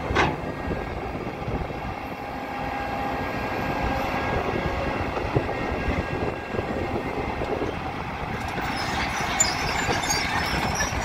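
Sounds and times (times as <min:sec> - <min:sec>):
track chains clanking: 0:07.6 - 0:11.0
high squeals from tracks: 0:07.7 - 0:11.0.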